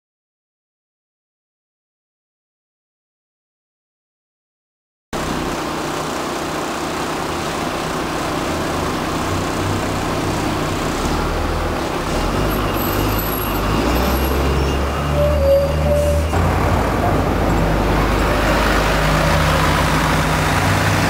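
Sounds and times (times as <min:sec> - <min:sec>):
diesel bus engine passing: 0:05.2 - 0:21.0
street traffic noise: 0:05.2 - 0:21.0.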